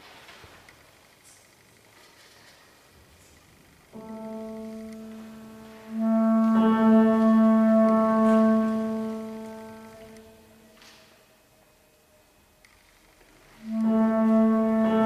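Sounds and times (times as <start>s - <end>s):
bass clarinet long note: 4.0s - 10.7s, 13.6s - 15.0s.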